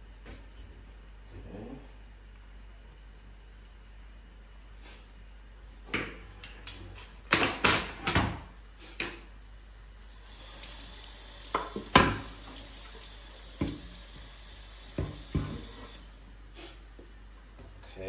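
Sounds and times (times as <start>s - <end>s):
kitchen tap running: 10.0s - 16.5s
dishes and pots clattering: 15.0s - 16.0s.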